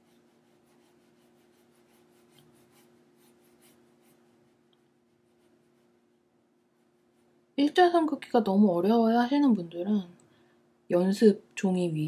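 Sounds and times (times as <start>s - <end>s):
brush strokes on paper: 0.0s - 7.8s.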